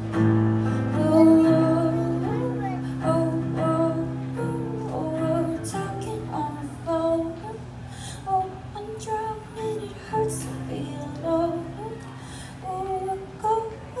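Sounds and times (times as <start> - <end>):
acoustic guitar: 0.0 - 14.0
woman singing: 0.7 - 14.0.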